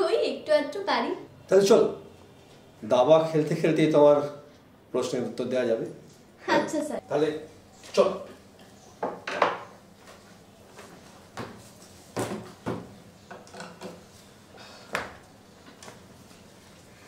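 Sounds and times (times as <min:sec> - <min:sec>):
wooden chairs knocking: 0:09.0 - 0:09.7, 0:11.4 - 0:14.0.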